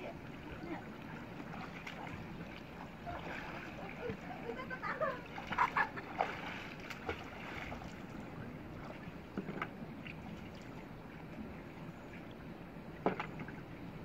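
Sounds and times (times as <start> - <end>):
flowing water rushing: 0.0 - 14.0
water splashing from wading: 0.0 - 14.0
sharp splashes: 1.4 - 8.1.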